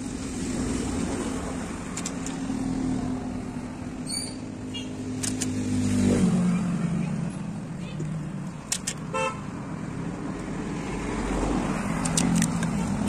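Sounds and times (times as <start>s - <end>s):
vehicle engine humming: 0.0s - 13.0s
short clicks: 5.2s - 5.6s, 8.6s - 9.0s.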